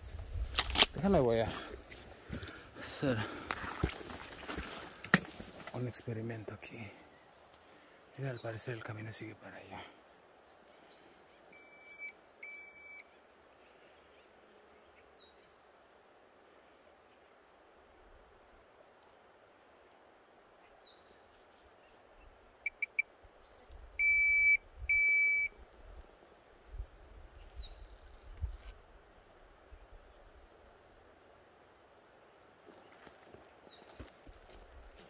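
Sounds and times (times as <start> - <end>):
faint outdoor hiss: 0.0 - 35.0
steady-pitched beeps: 22.7 - 23.0, 24.0 - 25.5.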